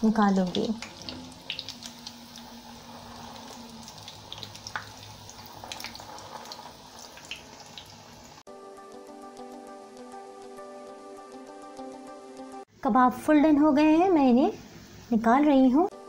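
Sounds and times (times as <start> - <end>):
food sizzling in oil: 0.0 - 8.5, 13.8 - 16.0
background music with held notes: 8.5 - 12.7.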